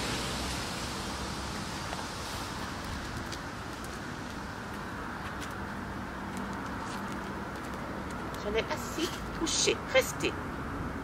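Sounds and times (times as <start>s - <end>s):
outdoor background hiss: 0.0s - 11.0s
footsteps on brick paving: 1.9s - 9.5s.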